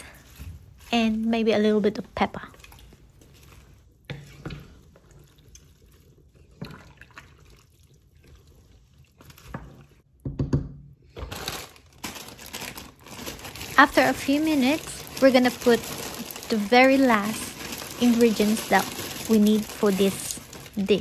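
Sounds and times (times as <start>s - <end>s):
spatula stirring soup: 0.1s - 10.2s
plastic bag crinkling: 11.2s - 21.0s.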